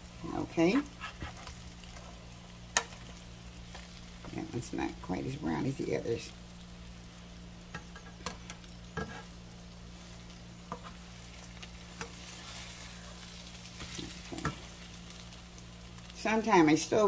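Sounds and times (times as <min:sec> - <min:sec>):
food sizzling in oil: 0:00.0 - 0:17.0
metal spatula scraping pan: 0:09.0 - 0:09.4.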